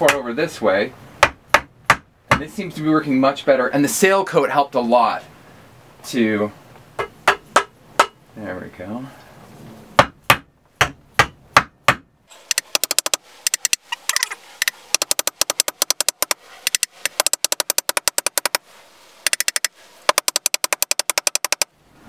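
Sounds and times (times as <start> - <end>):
rapid even clicking: 12.5 - 18.6, 19.3 - 21.7.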